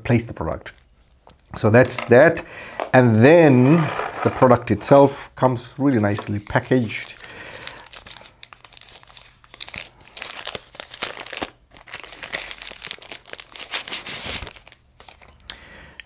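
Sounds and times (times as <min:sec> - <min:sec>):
plastic wrapper crinkling: 0:06.1 - 0:15.4.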